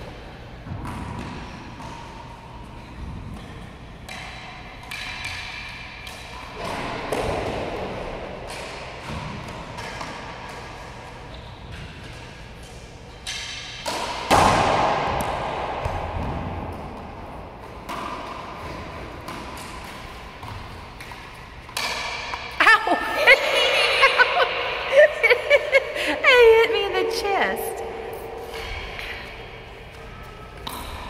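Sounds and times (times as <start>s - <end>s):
racquetball thwacks echoing in court: 0.6s - 22.6s.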